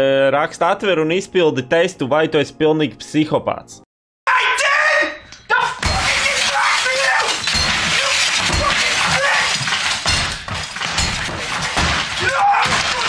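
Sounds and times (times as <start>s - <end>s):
glass and crockery shattering: 5.7s - 13.0s
metal bar heavy thuds: 5.8s - 13.0s.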